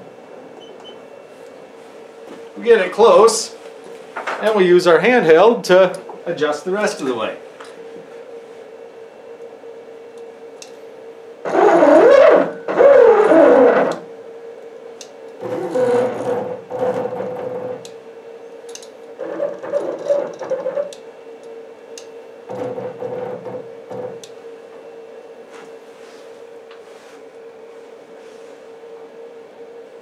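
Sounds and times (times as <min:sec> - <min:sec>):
steady hum: 0:00.0 - 0:30.0
stepper motor whine: 0:11.4 - 0:14.2, 0:15.4 - 0:18.4.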